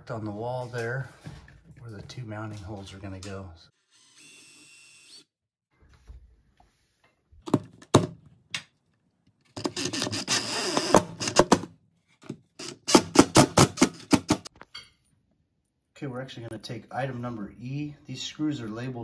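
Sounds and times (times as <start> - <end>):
cordless drill whirring: 3.8 - 5.4, 9.6 - 11.4
drill grinding into wall: 9.6 - 11.6, 12.6 - 14.4.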